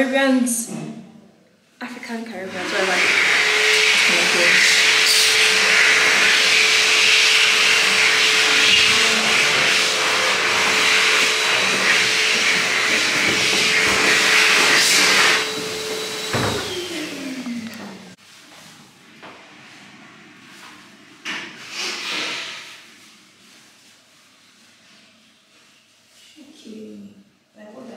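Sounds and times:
blower motor whining: 0:02.4 - 0:18.2.

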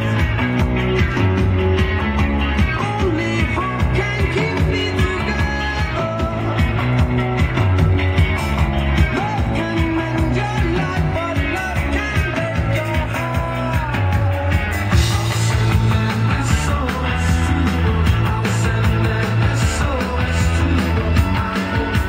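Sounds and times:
rock music with singing: 0:00.0 - 0:22.0.

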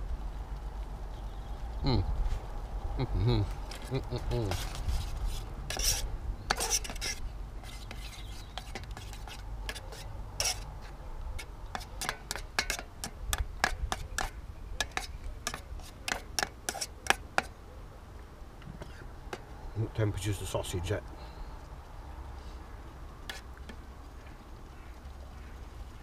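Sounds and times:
metal spoon scraping pan: 0:04.4 - 0:17.5, 0:23.3 - 0:23.5.

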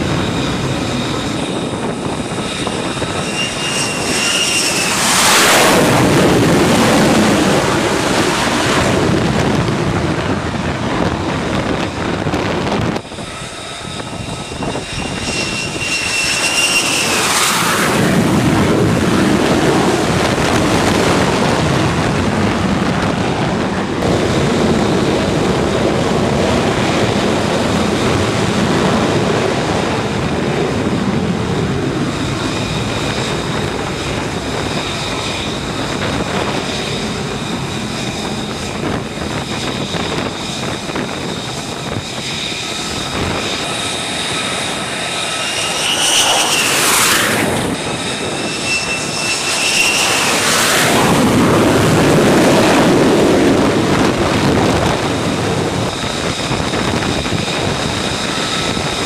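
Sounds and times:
jet engine roar: 0:00.0 - 0:59.0
turbine whine: 0:00.0 - 0:59.0.

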